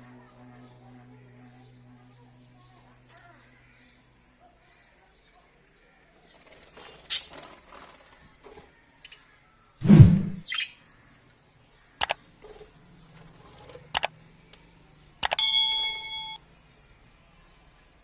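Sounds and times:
sharp clicks: 0:12.0 - 0:12.2, 0:15.2 - 0:15.5
ringing tone: 0:15.2 - 0:16.8.

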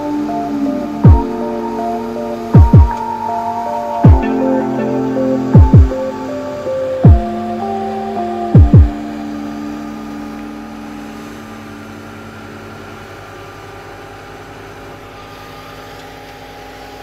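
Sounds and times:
thresher mechanical drone: 0:00.0 - 0:17.0.

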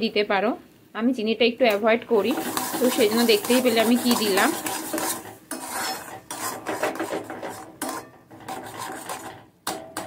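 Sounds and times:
spatula scraping paste in metal pan: 0:02.2 - 0:10.0.

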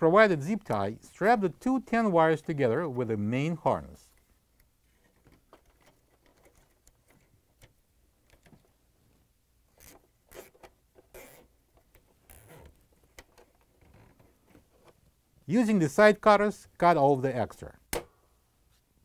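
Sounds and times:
zip tie clicks and rustles: 0:04.2 - 0:08.7, 0:09.7 - 0:15.0.

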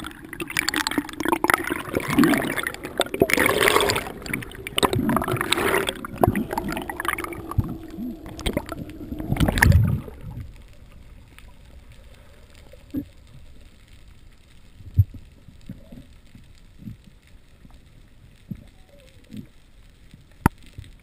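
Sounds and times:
muffled underwater hush: 0:00.0 - 0:13.6
water splashing and bubbling: 0:00.0 - 0:19.6.

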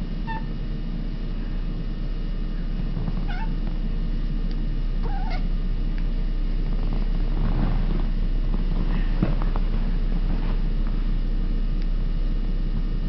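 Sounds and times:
steady low hum: 0:00.0 - 0:13.0
cat making odd calls: 0:00.3 - 0:00.5, 0:03.2 - 0:03.6, 0:05.0 - 0:05.5.

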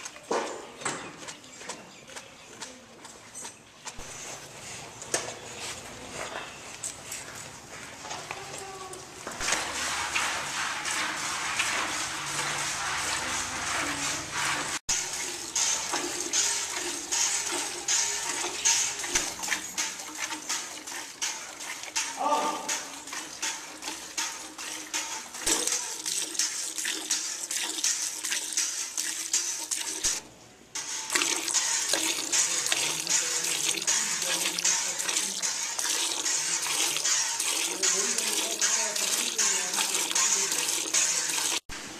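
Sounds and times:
milk squirting into metal bucket: 0:09.2 - 0:30.2, 0:30.8 - 0:41.6.

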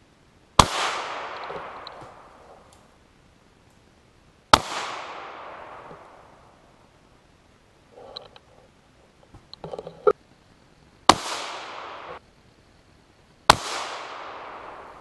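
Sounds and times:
gunshots echoing through woods: 0:00.6 - 0:02.9, 0:04.5 - 0:06.8, 0:11.1 - 0:12.2, 0:13.5 - 0:15.0.

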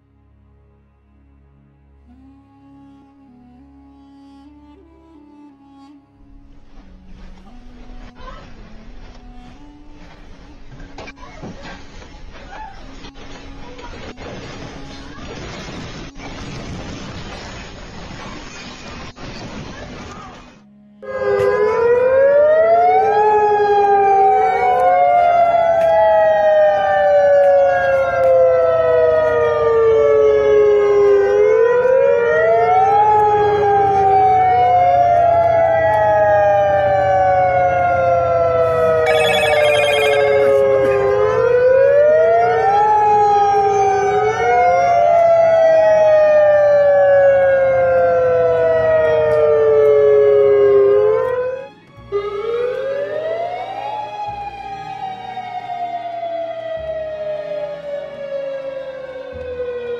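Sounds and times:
warning sirens wailing: 0:20.6 - 0:59.9.

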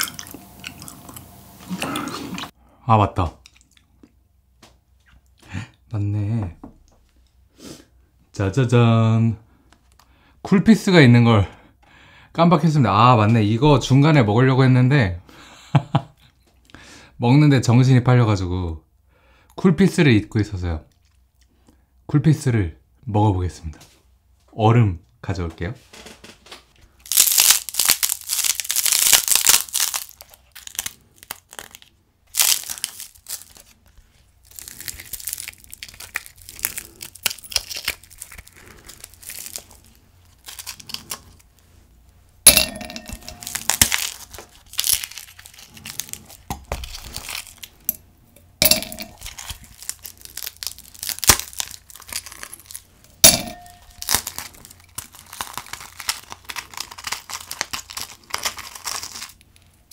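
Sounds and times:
ice cube clinking into glass: 0:42.5 - 0:44.1, 0:48.6 - 0:49.5
ice tray crackling: 0:42.7 - 0:47.7, 0:48.6 - 0:59.4.

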